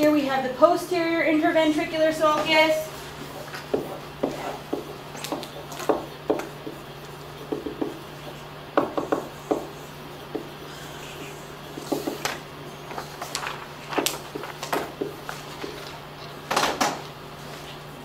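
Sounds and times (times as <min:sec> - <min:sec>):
steady low hum: 0:00.0 - 0:18.0
marker squeaking on whiteboard: 0:03.2 - 0:14.4.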